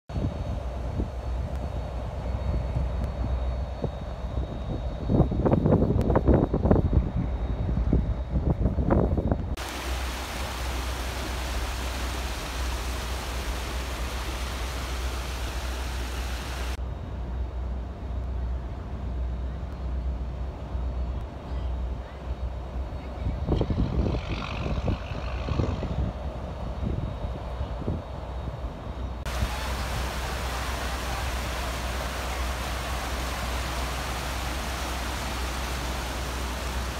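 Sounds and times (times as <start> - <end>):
floodwater rushing: 9.6 - 16.8, 29.3 - 36.9.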